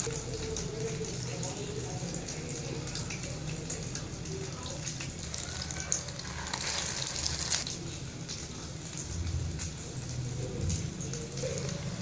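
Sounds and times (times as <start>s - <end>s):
patties sizzling in oil: 0.0s - 12.0s.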